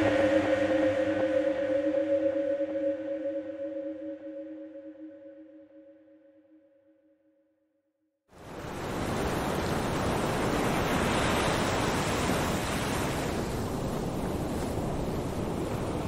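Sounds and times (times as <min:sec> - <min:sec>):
wind: 0:00.0 - 0:05.0, 0:08.3 - 0:16.0
ocean waves rushing: 0:08.4 - 0:16.0.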